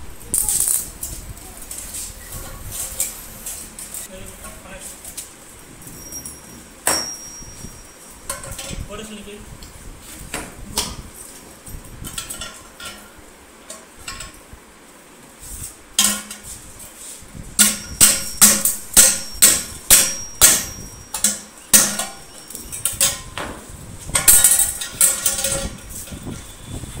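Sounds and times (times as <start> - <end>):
light metallic ring: 5.8 - 8.8, 17.8 - 23.4
hammer striking metal: 6.8 - 7.5, 17.6 - 22.4.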